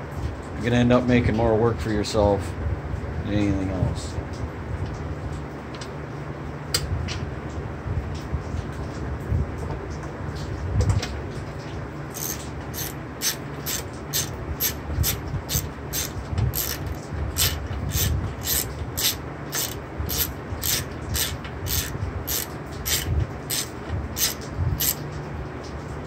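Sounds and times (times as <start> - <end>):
low background hum: 0.0 - 26.0
hand ratchet clicking: 12.1 - 25.0.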